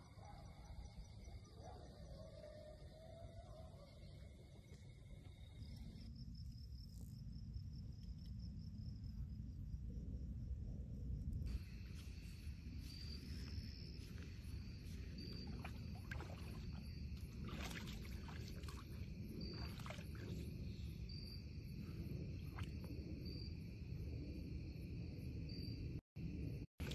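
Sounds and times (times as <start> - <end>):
steady low rumble: 5.3 - 26.9
deer splashing in water: 14.0 - 20.6.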